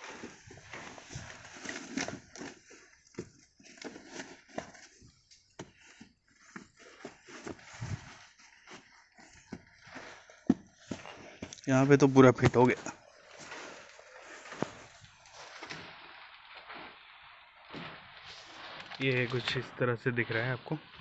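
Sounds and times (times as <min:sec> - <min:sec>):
floor mat knocks and rustles: 0:04.2 - 0:11.6.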